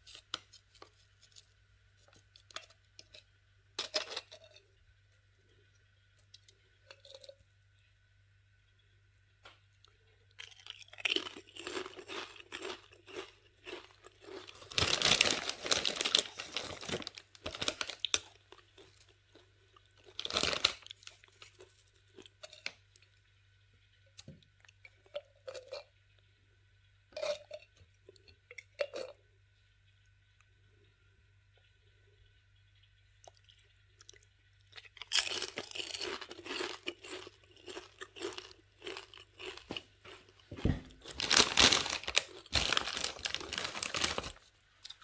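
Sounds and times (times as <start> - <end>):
chewing crunchy chips: 9.8 - 23.1, 33.2 - 45.0.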